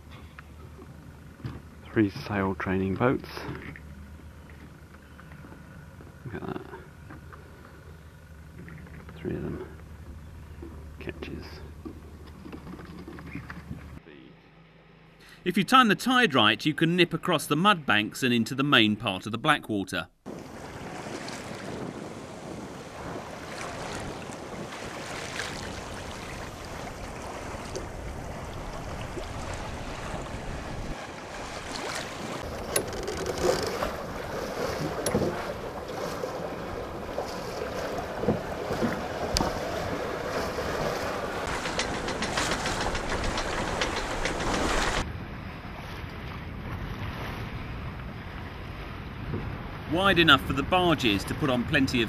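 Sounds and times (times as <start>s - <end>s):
wind buffeting microphone: 20.3s - 31.0s
water rushing and splashing: 20.3s - 45.0s.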